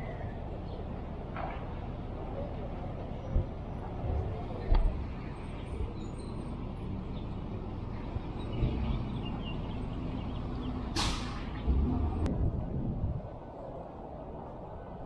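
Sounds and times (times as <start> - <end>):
low traffic rumble: 0.0 - 15.0
short hiss: 11.0 - 11.5.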